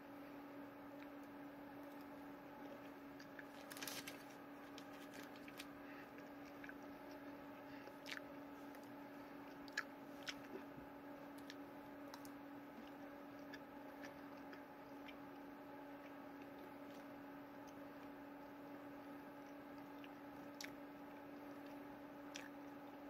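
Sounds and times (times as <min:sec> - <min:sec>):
steady low hum: 0:00.0 - 0:23.0
mouth clicks and smacks chewing: 0:08.0 - 0:08.9, 0:09.5 - 0:10.6, 0:22.3 - 0:22.6.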